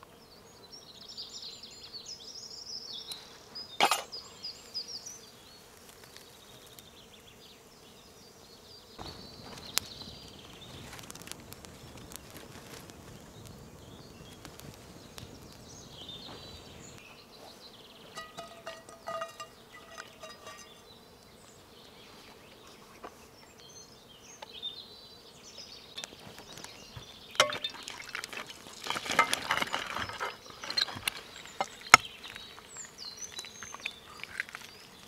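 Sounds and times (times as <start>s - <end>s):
campfire crackling and popping: 9.0s - 17.0s.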